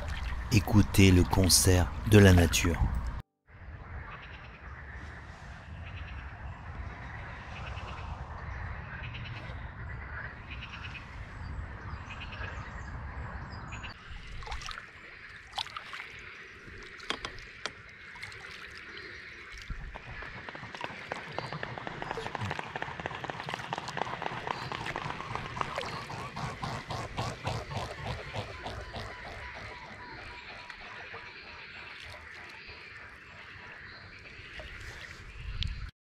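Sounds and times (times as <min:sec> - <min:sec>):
wind rumbling on microphone: 0:02.8 - 0:14.6, 0:19.6 - 0:31.2, 0:34.2 - 0:35.9
frogs croaking: 0:06.0 - 0:35.3.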